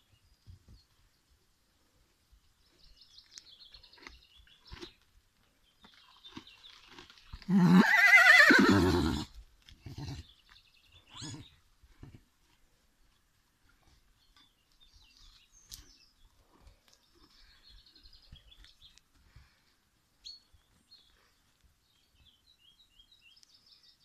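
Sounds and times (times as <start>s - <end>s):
horse whinnying: 7.4s - 10.2s, 11.1s - 11.5s.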